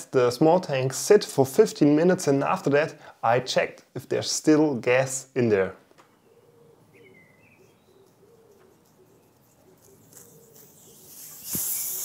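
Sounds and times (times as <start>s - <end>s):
faint bird chirps: 6.1s - 12.0s
gas hissing out: 10.6s - 12.0s.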